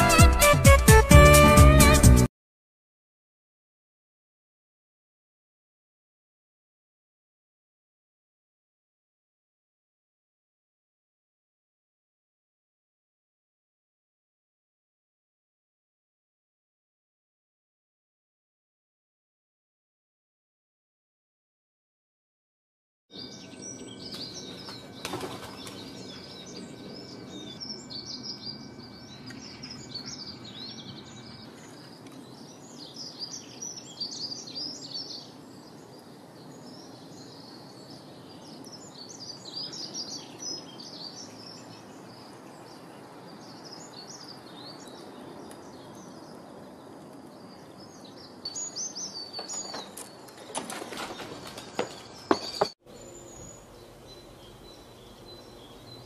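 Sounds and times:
outdoor background hiss: 23.2s - 56.0s
small birds chirping: 23.2s - 56.0s.

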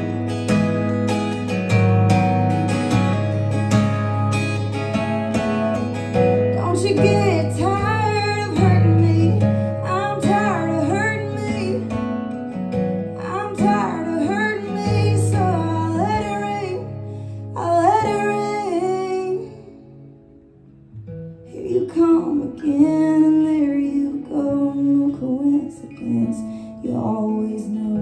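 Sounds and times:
acoustic guitar strumming: 0.0s - 28.0s
woman singing: 5.0s - 20.1s, 21.4s - 28.0s.

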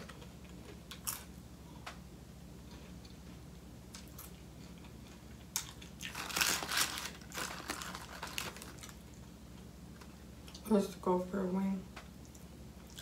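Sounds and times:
paper crinkling and rustling: 6.1s - 9.0s.

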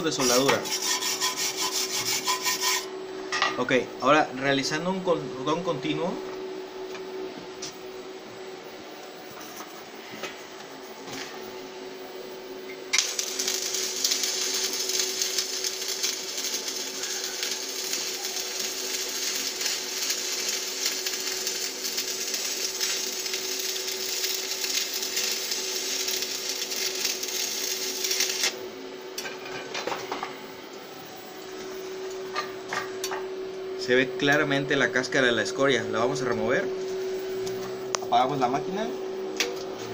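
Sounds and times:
welding arc crackling: 12.9s - 28.6s.

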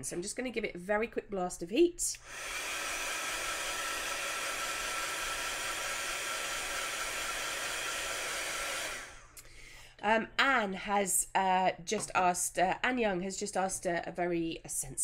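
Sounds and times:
heat tool blowing hot air: 2.1s - 9.4s.

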